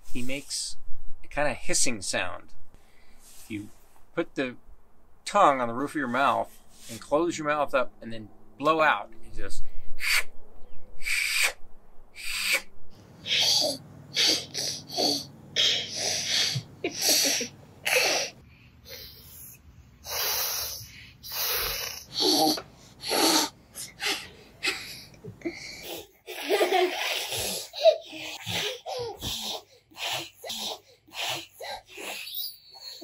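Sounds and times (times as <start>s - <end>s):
breathy hisses: 12.2s - 26.1s, 27.0s - 33.0s
giggling: 16.4s - 18.3s, 24.7s - 29.3s.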